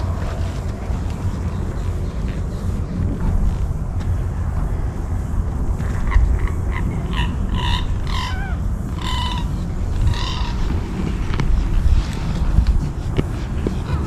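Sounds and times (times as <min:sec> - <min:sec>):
wind on microphone: 0:00.0 - 0:14.0
animal calls: 0:05.9 - 0:11.1.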